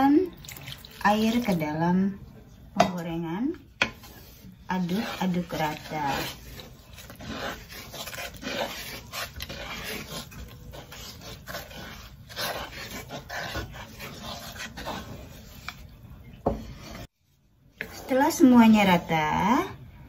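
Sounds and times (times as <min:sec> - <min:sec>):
wooden spatula scraping batter in pan: 0:03.8 - 0:19.6.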